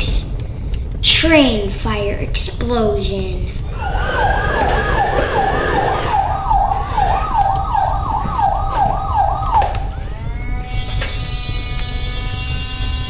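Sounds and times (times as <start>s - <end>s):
steady electronic tone: 3.6s - 10.7s
toy electronic siren wailing: 3.7s - 13.0s.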